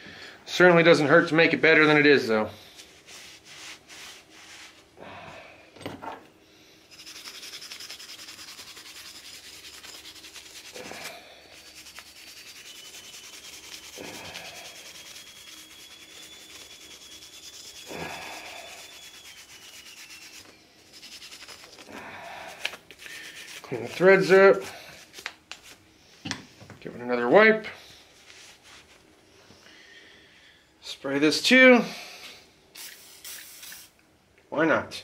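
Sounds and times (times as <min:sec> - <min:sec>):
wire brush scrubbing metal: 0:06.9 - 0:24.9.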